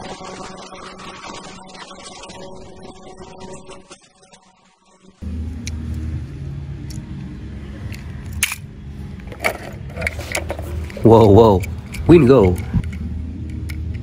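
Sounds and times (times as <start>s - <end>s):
steady low hum: 0.0s - 14.0s
metal toy cars clattering: 9.3s - 12.7s.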